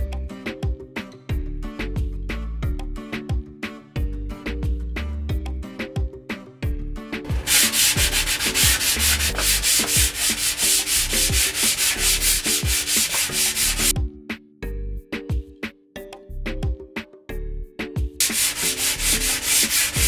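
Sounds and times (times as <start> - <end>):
sanding block rasping on wood: 7.3 - 13.9, 18.2 - 20.0.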